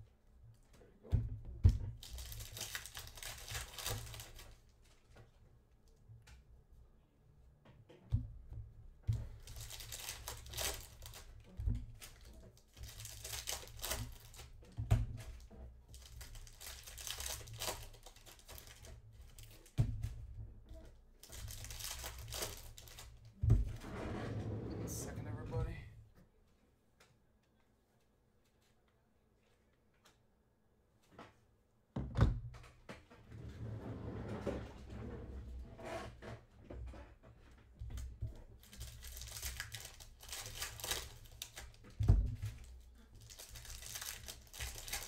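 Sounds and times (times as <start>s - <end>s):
plastic wrappers tearing and crinkling: 2.0s - 5.0s, 9.4s - 14.6s, 15.9s - 19.8s, 21.2s - 23.3s, 38.6s - 45.0s.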